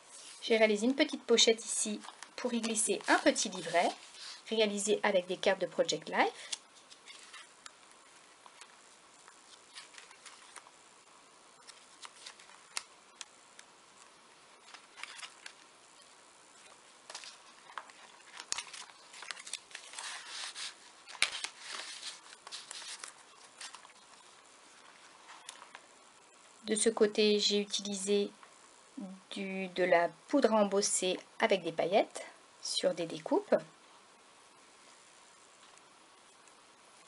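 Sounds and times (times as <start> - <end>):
paper and card rustling: 0.1 - 5.2, 6.1 - 10.8, 11.6 - 25.9.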